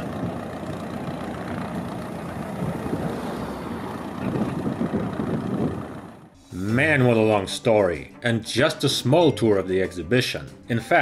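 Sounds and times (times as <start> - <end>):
tow tractor engine rumble: 0.0 - 7.8.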